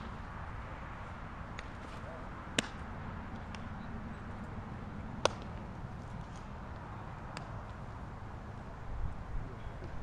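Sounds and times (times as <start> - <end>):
baseball smacking into glove: 2.6 - 2.8, 5.2 - 5.5.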